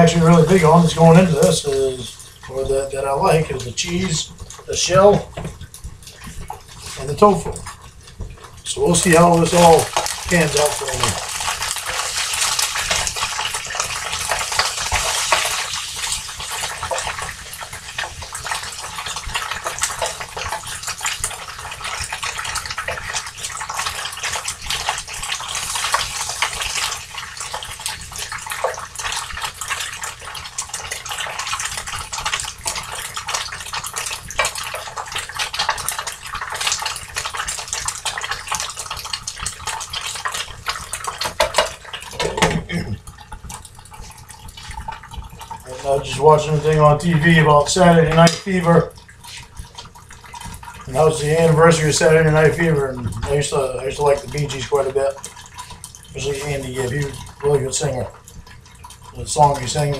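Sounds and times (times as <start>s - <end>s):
tofu sizzling in a frying pan: 7.6s - 45.8s.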